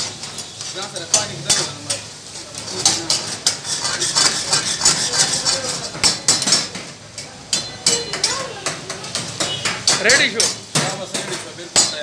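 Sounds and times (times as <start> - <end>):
metal ladle scraping a wok: 0.0 - 6.7
pan sizzling: 0.0 - 12.0.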